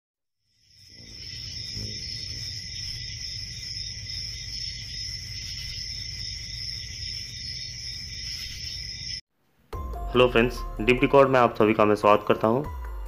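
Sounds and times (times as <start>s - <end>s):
crickets chirping: 0.4s - 9.2s.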